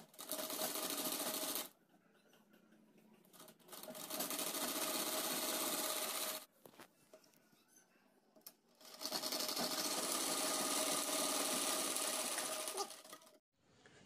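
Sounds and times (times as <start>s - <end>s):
sewing machine stitching fabric: 0.0s - 1.8s, 3.2s - 6.5s, 8.7s - 13.4s.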